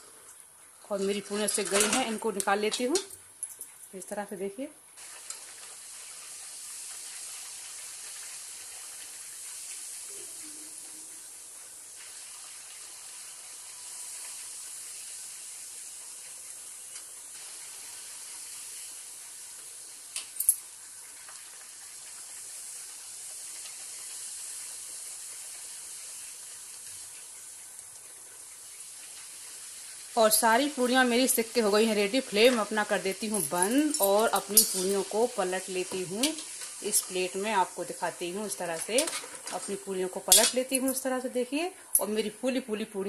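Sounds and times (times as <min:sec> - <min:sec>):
deep-frying sizzle: 0:04.4 - 0:41.9
metal spoon clicking on pan: 0:33.9 - 0:35.0, 0:40.3 - 0:40.6.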